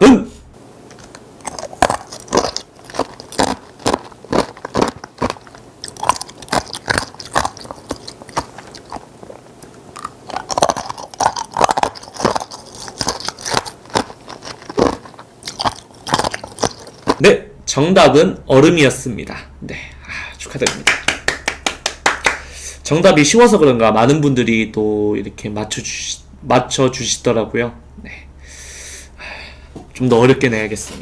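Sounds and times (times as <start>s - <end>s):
ice crunching between teeth: 0.9s - 17.3s.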